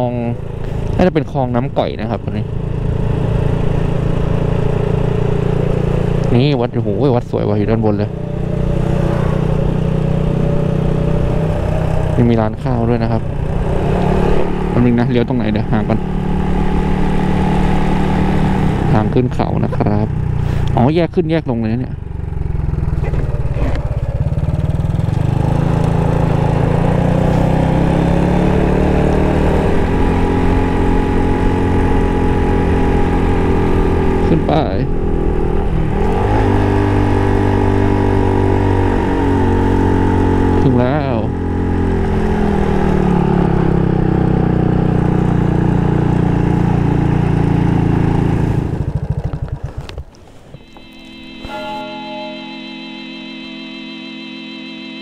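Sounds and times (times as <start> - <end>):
motorcycle engine climbing hill: 0.0 - 53.4.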